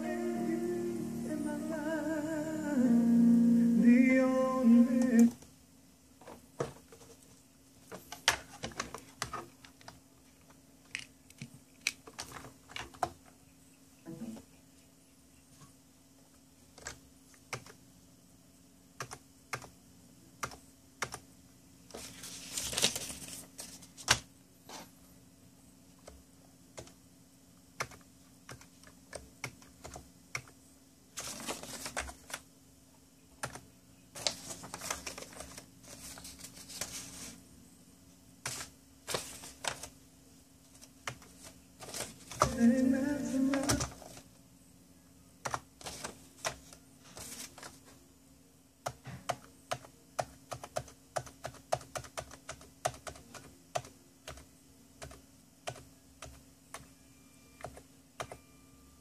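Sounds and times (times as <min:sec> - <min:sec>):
faint low hum: 0:00.0 - 0:59.0
paper card rustling: 0:21.9 - 0:24.2, 0:31.2 - 0:32.4, 0:34.2 - 0:37.4, 0:38.5 - 0:40.0, 0:40.8 - 0:42.5.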